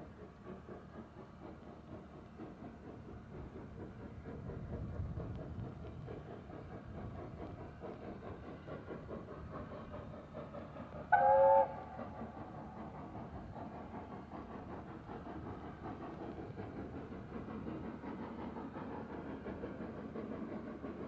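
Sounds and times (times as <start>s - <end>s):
distant train rumbling: 0.0s - 21.0s
train rattle: 0.0s - 21.0s
locomotive whistle blast: 11.1s - 11.9s.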